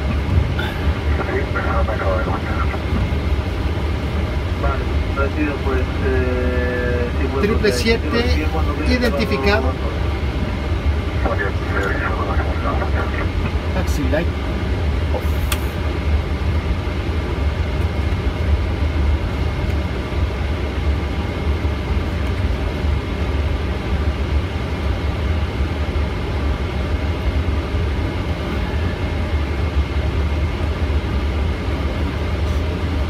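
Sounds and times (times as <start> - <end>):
aircraft deep rumble: 0.0 - 33.0
faint whining tones: 25.8 - 33.0.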